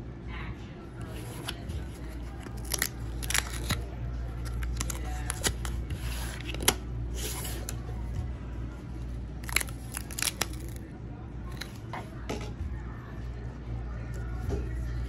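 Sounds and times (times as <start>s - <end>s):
cardboard tabs tearing: 1.2s - 3.8s, 4.4s - 6.7s, 9.4s - 10.8s.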